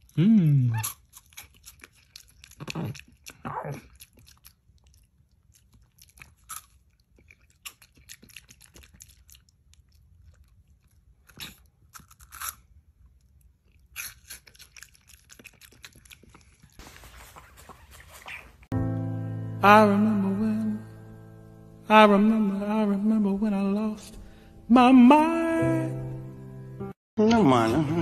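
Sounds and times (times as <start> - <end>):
monkey chewing crunchy food: 0.0 - 18.8.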